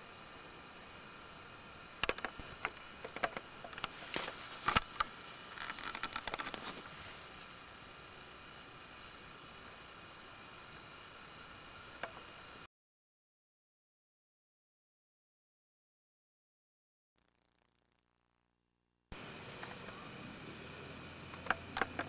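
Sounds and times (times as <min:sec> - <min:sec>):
steady hiss: 0:00.0 - 0:12.7, 0:19.1 - 0:22.0
microphone handling clicks and rustles: 0:02.0 - 0:07.5.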